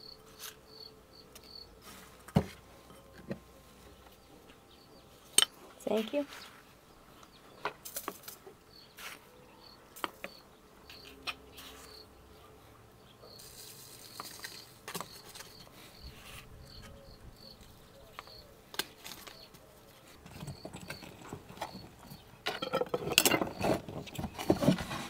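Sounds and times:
insect chirping: 0.0 - 1.7, 13.2 - 18.5
metal lids twisted onto glass jars: 20.2 - 24.3.

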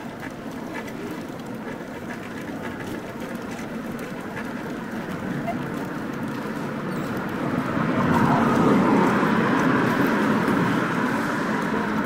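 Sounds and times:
vehicle passing by: 4.4 - 12.0.

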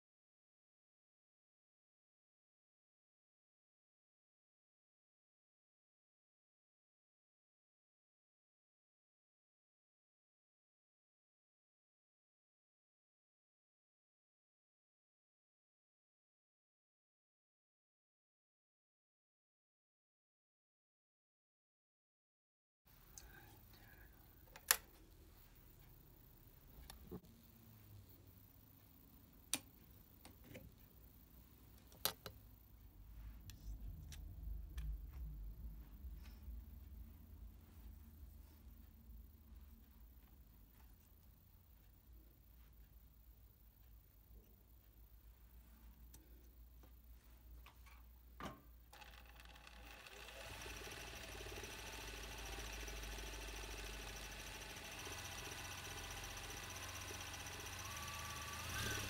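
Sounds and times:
low handling rumble: 33.3 - 39.5
sewing machine clicks: 48.9 - 59.0.

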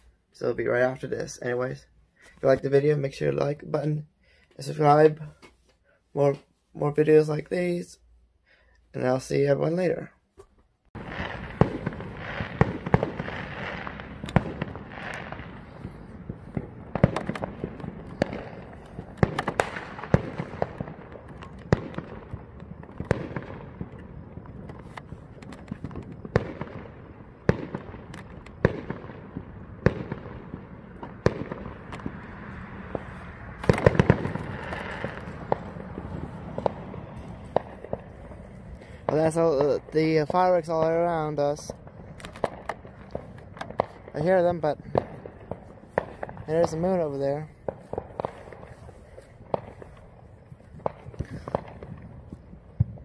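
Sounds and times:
distant fireworks din: 10.9 - 53.0
fireworks sharp bangs: 10.9 - 53.0.

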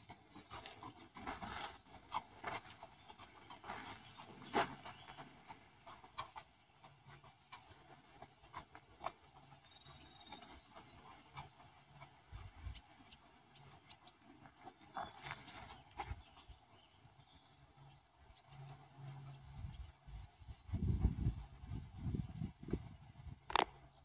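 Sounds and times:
horse hoofbeats on sand: 0.0 - 23.6.

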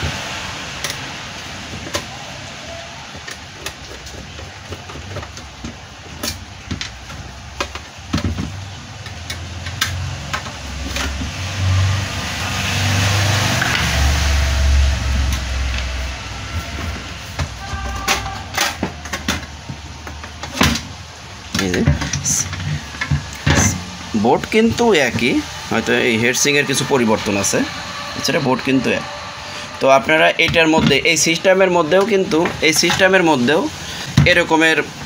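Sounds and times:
low rumble: 22.2 - 30.4.

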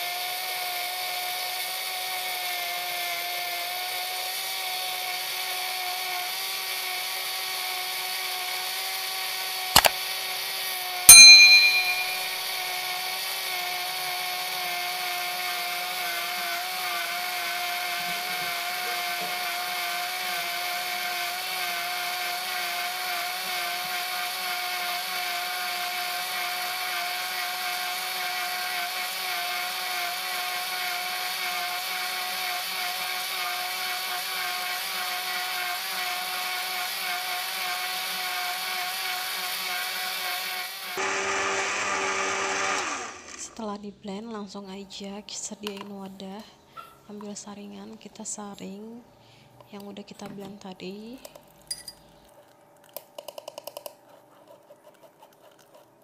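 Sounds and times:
blender motor humming: 0.0 - 10.0, 12.8 - 43.6
sharp click: 9.8 - 10.0
ringing clang: 11.1 - 12.4.

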